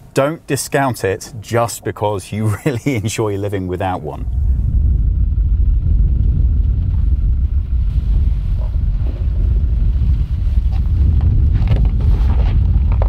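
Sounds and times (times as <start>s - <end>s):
pickup truck engine rumbling: 1.2s - 13.0s
sharp crackles: 4.1s - 13.0s.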